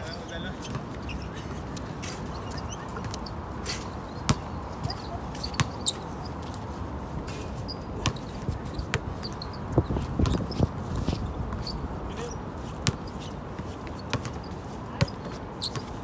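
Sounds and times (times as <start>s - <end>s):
steady background noise: 0.0s - 16.0s
basketball bouncing on a court: 4.2s - 6.1s, 8.0s - 13.3s, 13.9s - 16.0s.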